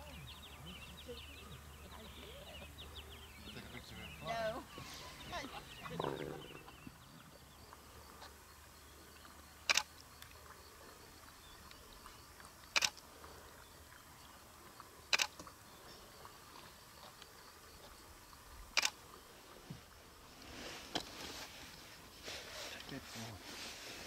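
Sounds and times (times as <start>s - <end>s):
faint bush ambience: 0.0s - 24.0s
camera shutter clicking: 9.7s - 9.9s, 12.8s - 13.0s, 15.1s - 15.3s, 18.8s - 19.0s.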